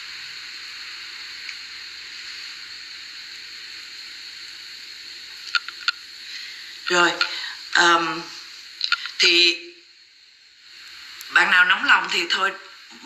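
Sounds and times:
background hiss: 0:00.0 - 0:13.0
short clicks: 0:05.5 - 0:06.0, 0:08.8 - 0:09.2.

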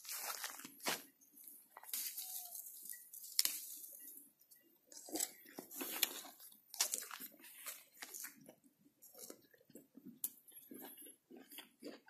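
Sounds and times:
footsteps through dry grass: 0:00.0 - 0:01.1, 0:01.8 - 0:04.1, 0:05.0 - 0:08.4.

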